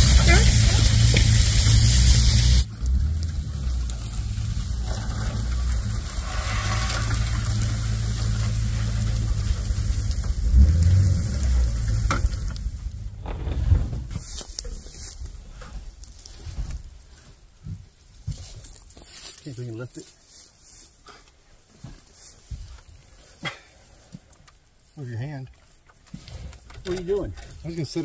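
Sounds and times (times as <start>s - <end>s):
pickup truck engine rumbling: 0.0s - 16.6s.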